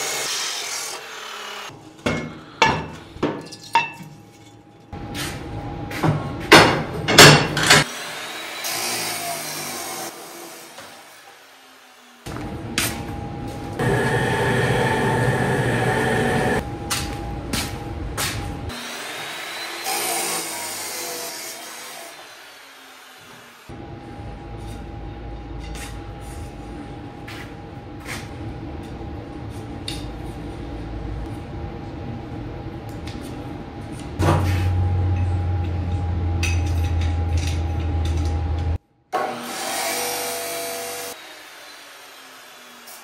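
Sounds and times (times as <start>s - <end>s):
power tools running: 13.7s - 16.6s.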